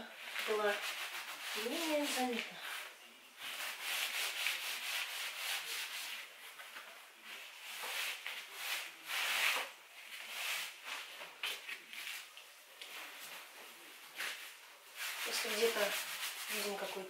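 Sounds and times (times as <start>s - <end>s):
cloth rubbing on wood: 0.2s - 17.0s.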